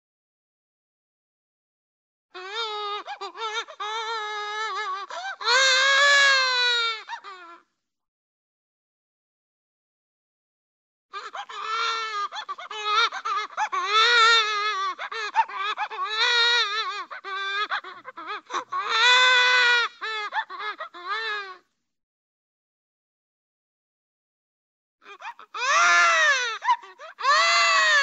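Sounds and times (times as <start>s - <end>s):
cartoon baby crying: 2.4s - 7.6s, 11.2s - 21.6s, 25.1s - 28.0s.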